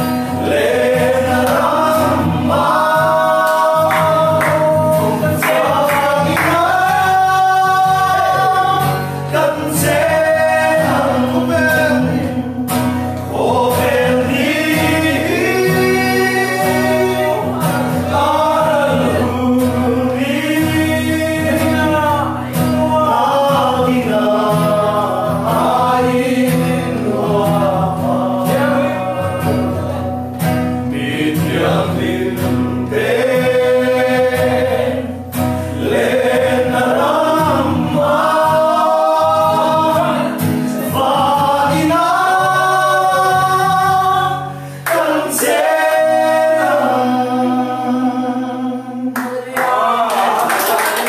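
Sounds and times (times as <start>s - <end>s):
voices singing gospel: 0.0s - 51.0s.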